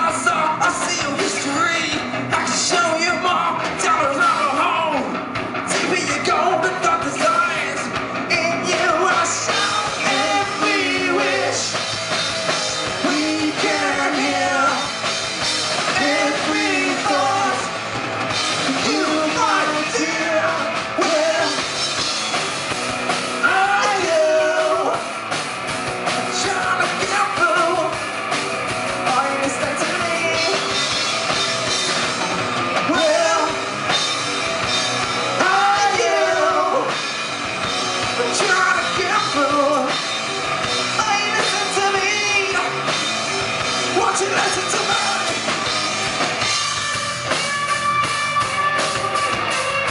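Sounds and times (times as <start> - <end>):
person singing lead vocal: 0.0 - 12.0, 12.7 - 15.2, 15.8 - 22.2, 23.4 - 25.2, 26.1 - 28.0, 29.0 - 31.4, 32.8 - 34.1, 34.7 - 37.4, 38.0 - 43.0, 43.9 - 45.8
bass guitar: 0.0 - 49.9
drum kit: 0.0 - 49.9
electric guitar: 0.0 - 49.9.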